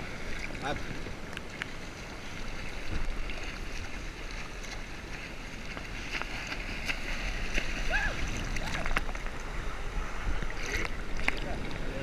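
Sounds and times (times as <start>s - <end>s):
seawater lapping and sloshing: 0.0s - 12.0s
small water splashes: 0.0s - 12.0s.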